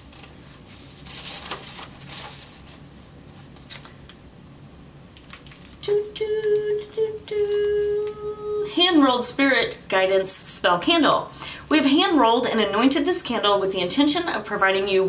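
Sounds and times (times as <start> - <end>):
paper rustling and crinkling: 0.0 - 3.8, 5.2 - 5.8.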